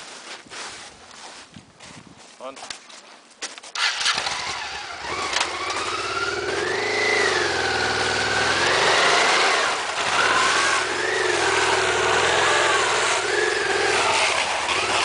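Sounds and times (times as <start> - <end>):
motorcycle engine revving: 3.8 - 15.0.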